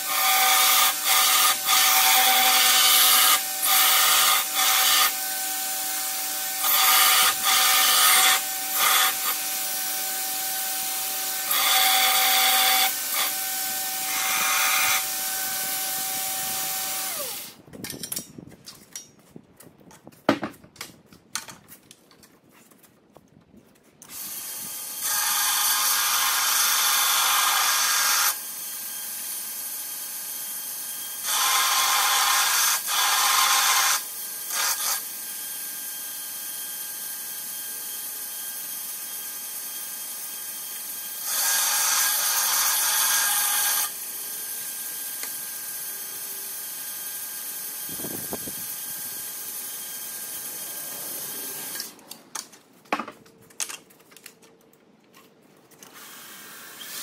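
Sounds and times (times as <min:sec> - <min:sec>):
belt grinder running: 0:00.0 - 0:17.6.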